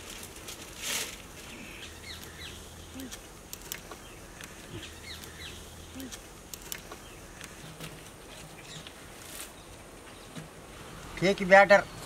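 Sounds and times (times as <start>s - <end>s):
falling bird chirps: 1.5s - 11.0s.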